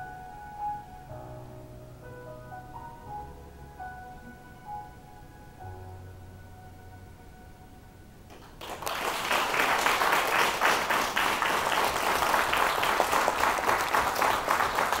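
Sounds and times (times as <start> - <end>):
audience applauding: 8.3 - 15.0.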